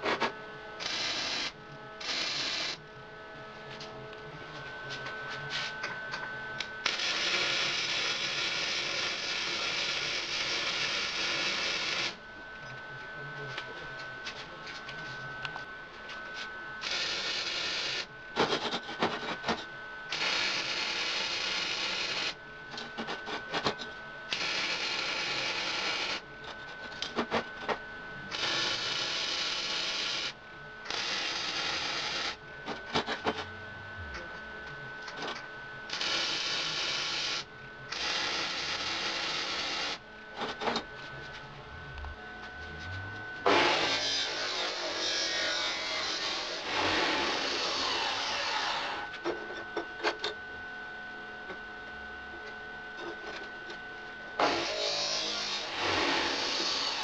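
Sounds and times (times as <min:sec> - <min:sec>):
arc welding crackle: 0:00.8 - 0:02.8, 0:06.8 - 0:12.2, 0:16.8 - 0:18.8, 0:20.1 - 0:22.4, 0:24.3 - 0:26.2, 0:28.3 - 0:32.4, 0:35.9 - 0:40.0.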